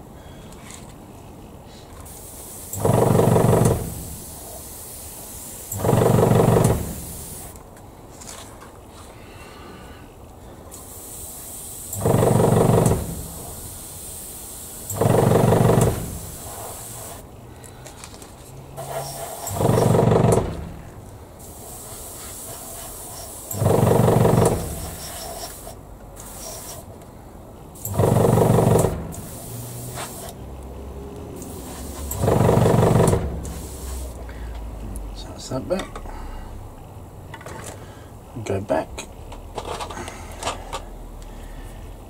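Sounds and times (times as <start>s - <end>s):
airbrush spraying paint: 2.0s - 7.6s, 10.7s - 17.3s, 18.8s - 20.3s, 21.4s - 26.9s, 27.8s - 30.4s, 31.4s - 34.2s.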